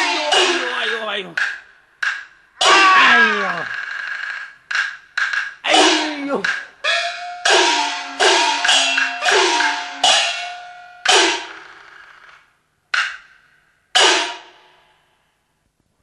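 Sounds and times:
gong and cymbal hits: 0:07.2 - 0:11.6.

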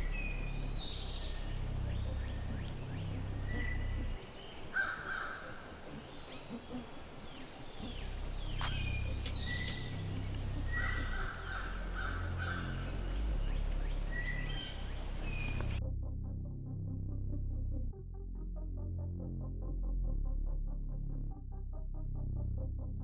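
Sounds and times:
steady low rumble: 0:00.0 - 0:04.7, 0:05.7 - 0:23.0
birds whistling: 0:00.0 - 0:15.8
harsh raspy bird calls: 0:00.0 - 0:15.8
sharp clicks: 0:07.8 - 0:10.0.

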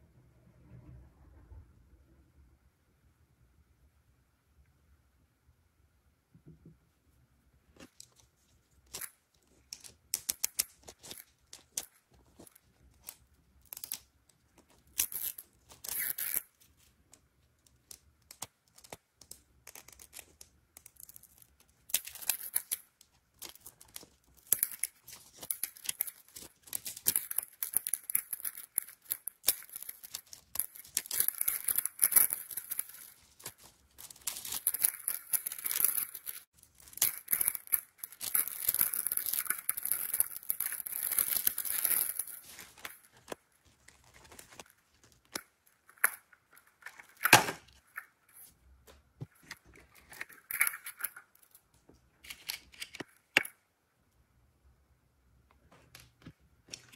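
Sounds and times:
plastic film crinkling: 0:17.8 - 0:51.6
paper wrapper tearing: 0:23.4 - 0:45.4.

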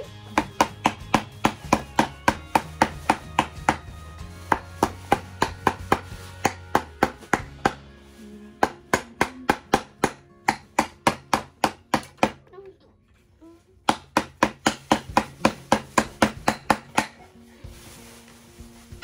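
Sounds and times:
hammer tapping on wood: 0:00.4 - 0:03.9.

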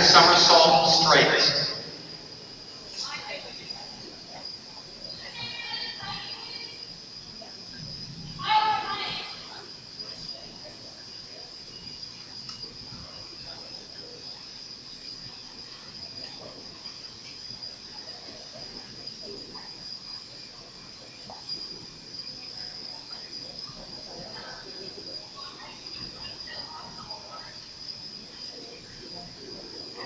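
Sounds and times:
high-pitched whine: 0:00.0 - 0:03.3
faint murmur of people: 0:00.0 - 0:30.0.

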